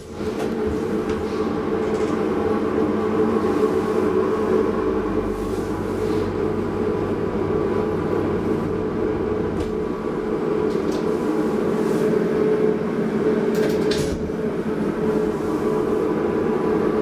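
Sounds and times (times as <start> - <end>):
hydraulic elevator humming: 0.0 - 17.0
low rumble: 1.0 - 12.8.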